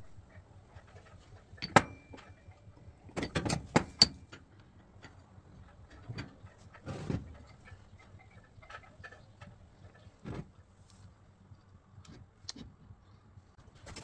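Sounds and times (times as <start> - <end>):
metallic ring: 1.6 - 2.6.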